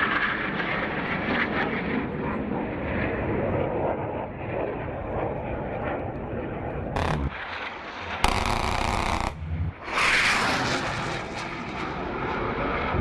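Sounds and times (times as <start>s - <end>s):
jet roar rushing: 6.9s - 13.0s
cannon burst ripping: 7.0s - 7.4s.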